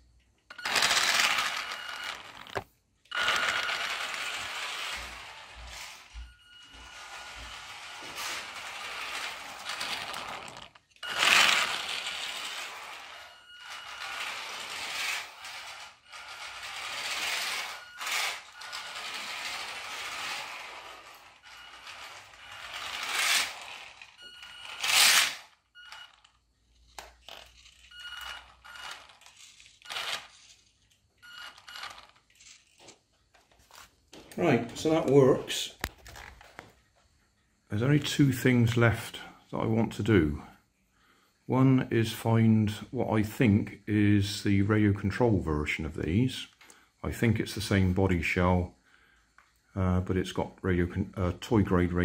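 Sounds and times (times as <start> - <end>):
toy car motor whirring: 0.5 - 33.1
plastic wheels rattling on wood: 8.2 - 13.1.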